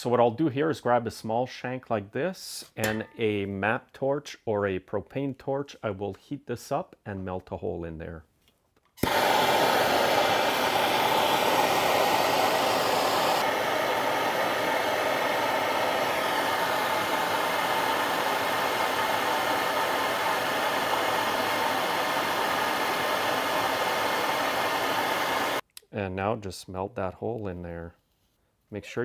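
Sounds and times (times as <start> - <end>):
gas torch flame hissing: 9.0 - 25.6.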